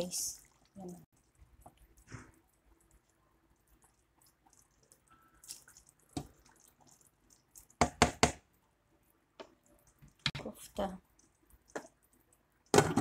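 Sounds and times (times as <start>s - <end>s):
sauce bubbling in a pot: 0.0s - 12.8s.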